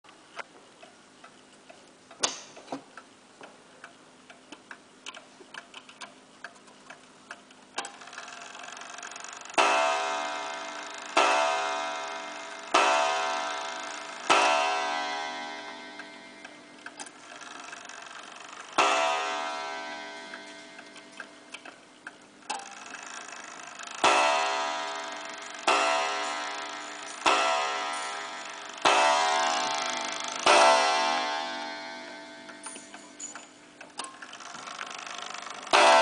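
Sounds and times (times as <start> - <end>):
clock ticking: 0.1 - 36.0
clock gong strikes: 9.6 - 16.8, 18.8 - 21.5, 24.0 - 33.0, 35.7 - 36.0.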